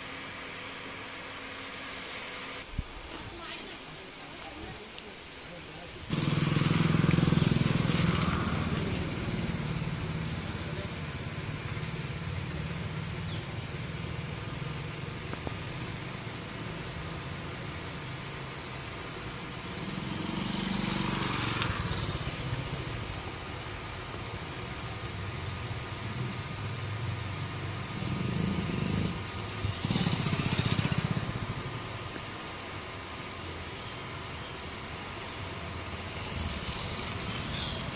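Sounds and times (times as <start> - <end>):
steady engine hum: 0.0 - 2.7, 6.1 - 37.9
spray hiss: 0.0 - 3.8
high-pressure water spray hiss: 0.0 - 37.9
motorcycle passing: 6.1 - 18.4, 19.2 - 32.1, 35.4 - 37.9.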